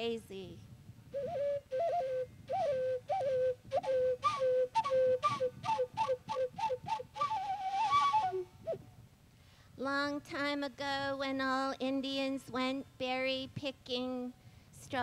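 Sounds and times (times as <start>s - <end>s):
flute playing slow melody: 1.1s - 8.9s.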